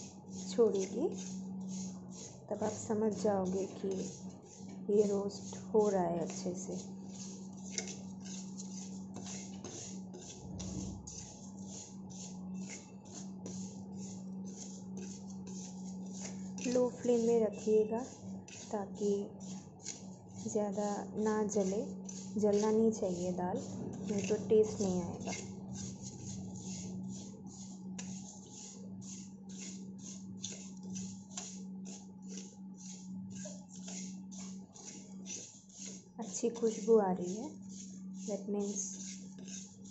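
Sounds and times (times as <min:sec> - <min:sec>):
metal spoon scraping a pan: 0:00.0 - 0:39.9
low hum: 0:10.4 - 0:12.7, 0:20.1 - 0:30.4.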